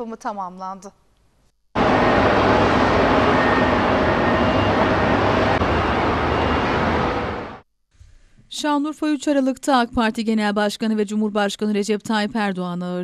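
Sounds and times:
road traffic rushing: 1.8 - 7.6.

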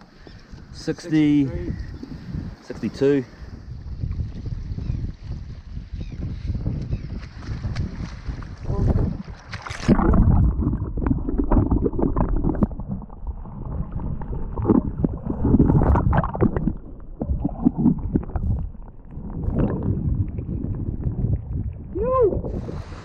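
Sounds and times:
splash into water: 7.2 - 12.9
muffled underwater sloshing and gurgling: 8.3 - 23.0.

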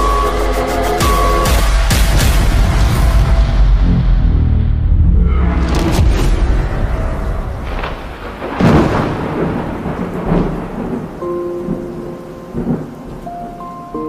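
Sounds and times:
rolling thunder: 2.0 - 13.2
rain: 6.3 - 14.0.

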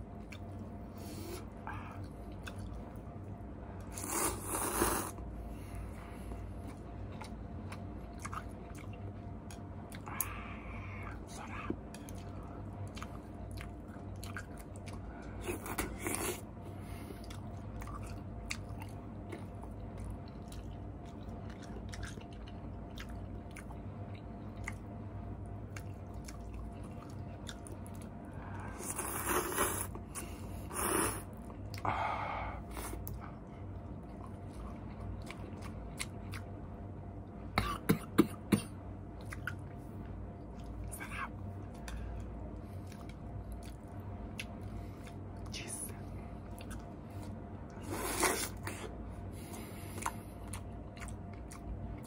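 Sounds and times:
chewing and slurping noodles: 3.8 - 24.9, 25.6 - 32.0, 46.4 - 52.0.

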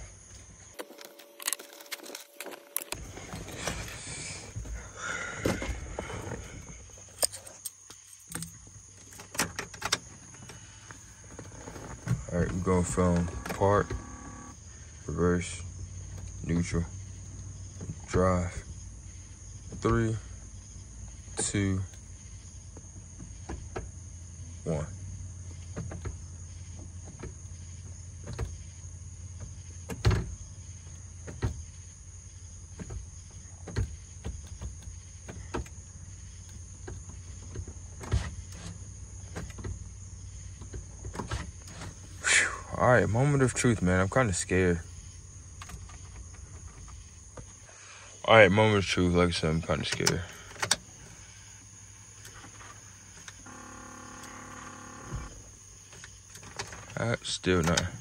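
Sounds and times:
crickets chirring: 0.0 - 58.0
clicks and clunks of truck controls: 11.4 - 14.6, 49.7 - 51.0, 52.2 - 58.0
low hum: 11.8 - 14.6.

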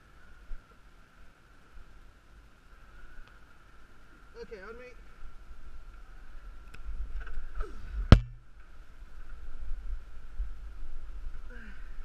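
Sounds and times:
sharp knock: 8.1 - 8.4.

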